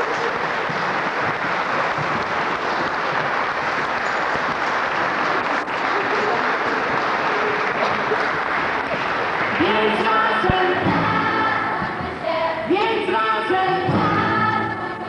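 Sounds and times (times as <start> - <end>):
audience applauding: 0.0 - 10.9
choir singing sustained notes: 9.6 - 15.0.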